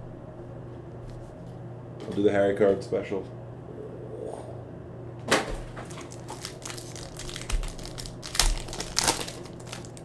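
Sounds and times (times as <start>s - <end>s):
foil wrapper crinkling and tearing: 5.8s - 10.0s.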